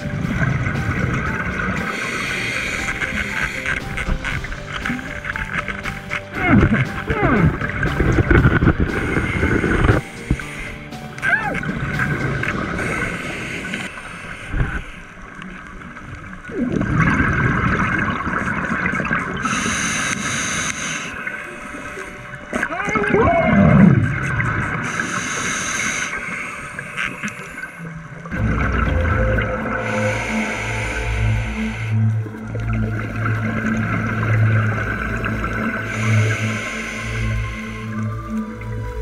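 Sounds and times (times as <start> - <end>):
exhaled bubbles gurgling underwater: 0.0 - 10.5, 11.5 - 39.0
regulator hissing inhale: 1.8 - 4.2, 8.9 - 11.0, 12.7 - 15.2, 19.4 - 22.4, 24.8 - 27.9, 29.8 - 32.2, 35.8 - 38.4.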